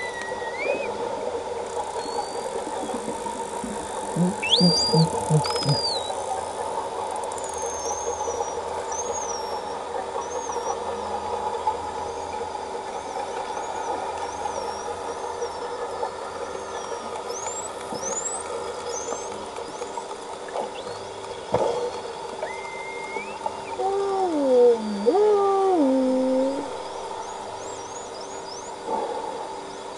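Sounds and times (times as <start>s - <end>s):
whales whistling underwater: 0.0s - 1.2s, 1.8s - 6.2s, 21.8s - 29.9s
steady hum of even tones: 0.0s - 6.4s, 14.2s - 29.9s.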